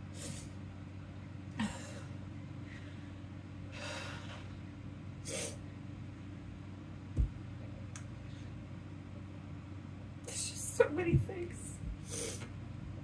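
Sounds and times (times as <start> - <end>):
woman sniffling: 12.0 - 12.5.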